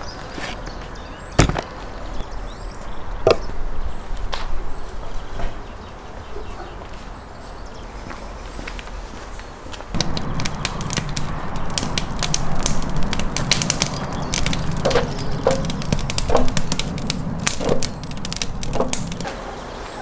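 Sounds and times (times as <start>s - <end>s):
firewood crackling and popping: 9.7s - 19.4s
fire low rush: 9.9s - 20.0s
wooden blocks knocking: 10.0s - 19.2s.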